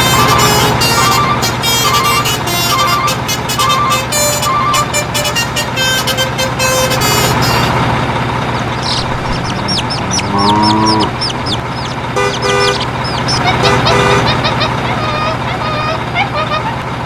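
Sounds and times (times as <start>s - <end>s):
horn toots: 0.0s - 7.9s, 8.6s - 16.7s
engine hum: 0.0s - 17.0s
chirping bird calls: 0.2s - 4.9s, 8.5s - 16.9s.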